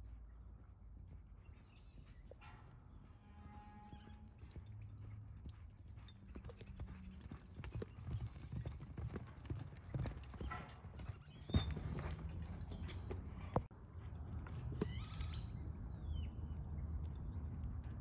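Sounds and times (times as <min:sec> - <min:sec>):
horse hoofbeats on dirt: 0:03.0 - 0:16.5.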